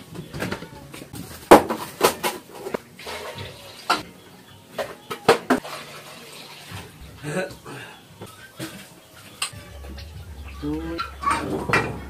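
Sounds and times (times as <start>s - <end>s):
kitchenware clattering: 0.3s - 4.1s, 8.3s - 12.0s.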